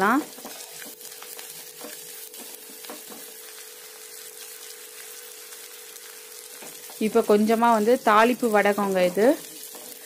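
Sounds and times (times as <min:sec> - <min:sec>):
wooden spatula stirring and scraping: 0:00.0 - 0:03.6, 0:06.5 - 0:10.0
onions sizzling in hot oil: 0:00.0 - 0:10.0.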